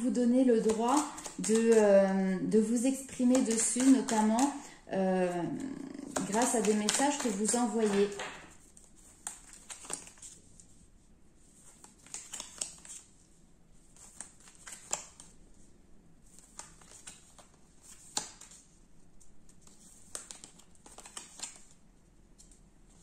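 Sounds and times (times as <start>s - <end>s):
cards snapping and clicking: 0.6s - 1.8s, 3.1s - 4.7s, 6.1s - 8.6s, 9.2s - 10.2s, 11.8s - 13.0s, 14.0s - 15.3s, 16.4s - 18.6s, 19.6s - 21.8s.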